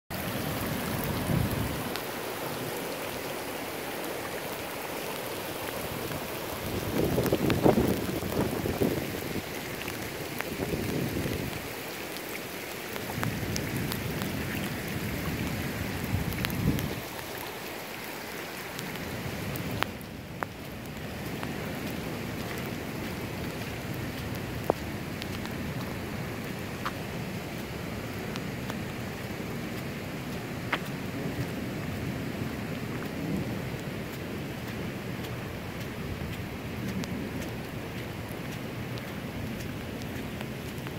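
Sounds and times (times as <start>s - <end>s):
heavy rain on asphalt: 0.1s - 40.9s.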